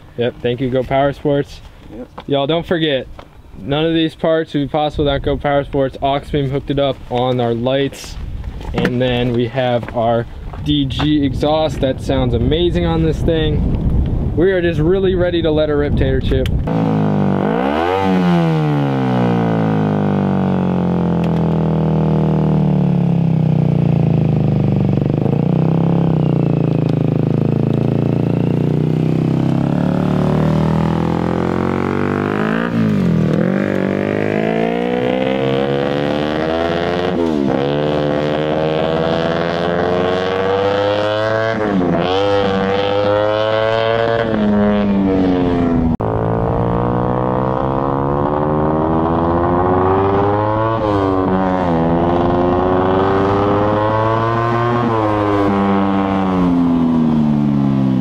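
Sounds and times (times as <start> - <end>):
motorcycle engine revving and shifting: 16.6 - 58.0.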